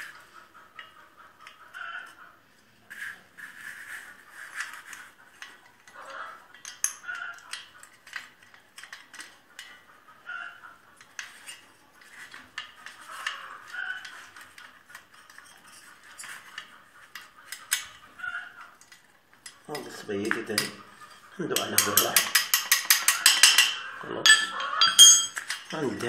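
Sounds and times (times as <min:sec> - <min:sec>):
metal tools clinking: 0:18.8 - 0:26.0.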